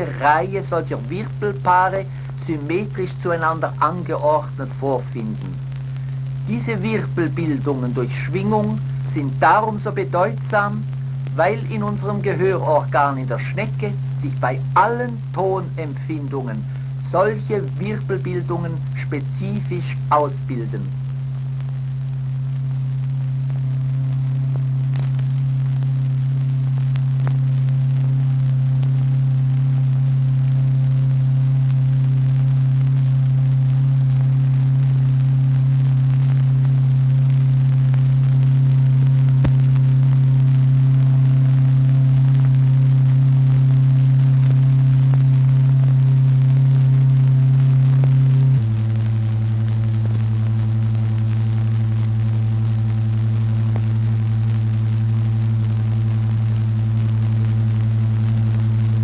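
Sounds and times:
low electronic tone: 0.0 - 21.5.

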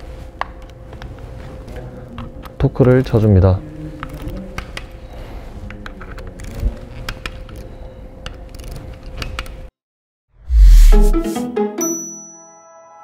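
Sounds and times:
steady background hum: 0.0 - 9.7.

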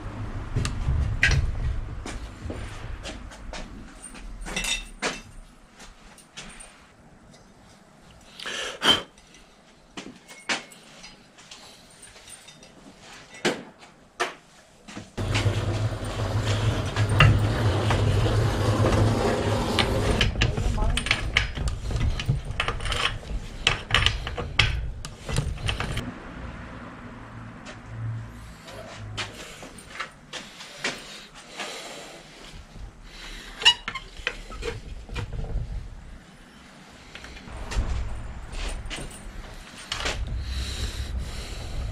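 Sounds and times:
metallic clinks of bicycle parts: 4.0 - 5.5, 10.2 - 13.5
loud noise with low hum: 15.2 - 26.0, 37.2 - 41.9
metal scraping: 15.2 - 26.0, 36.6 - 41.9
metal clicks and knocks: 19.8 - 26.0.

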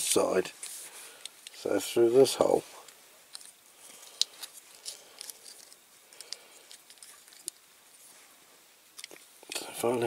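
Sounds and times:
small plastic parts clicking: 4.1 - 7.6, 9.0 - 9.6.

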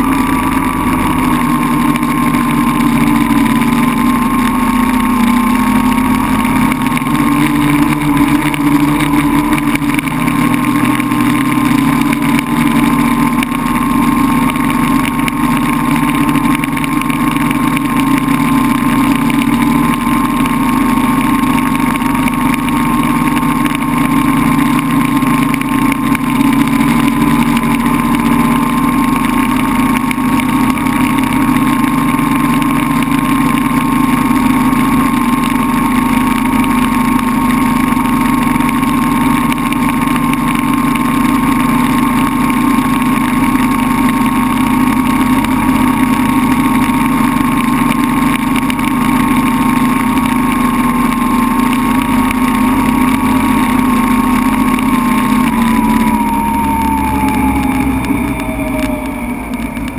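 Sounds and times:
drone motors and propellers humming: 0.0 - 59.9.

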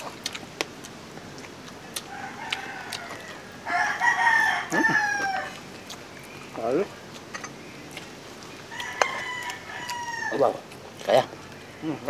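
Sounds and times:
rooster crowing: 1.9 - 5.6, 8.7 - 10.5.

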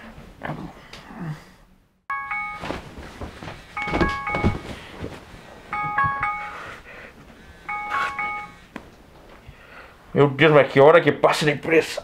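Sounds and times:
phone alarm chime: 2.1 - 2.8, 3.8 - 4.9, 5.7 - 6.8, 7.7 - 8.6
rustling and movement: 2.4 - 9.5.

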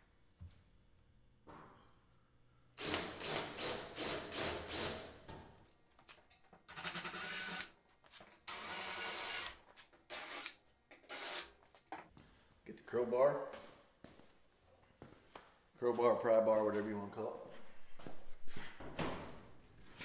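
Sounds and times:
cordless drill drilling rivets: 6.7 - 7.7, 8.5 - 11.5.

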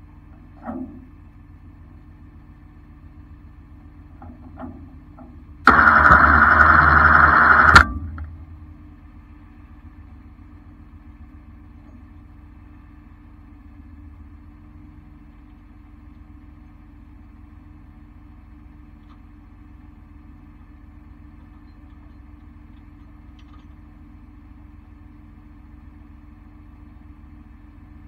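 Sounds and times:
truck engine idling: 0.0 - 28.0
loud burst of noise: 5.6 - 8.4.

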